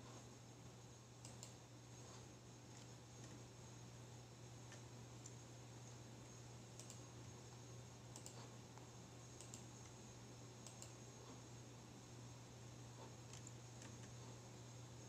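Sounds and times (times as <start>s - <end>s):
steady low hum: 0.0s - 15.0s
laptop keyboard keys clicking: 6.8s - 7.0s, 8.1s - 8.4s, 9.4s - 9.9s, 10.6s - 11.0s.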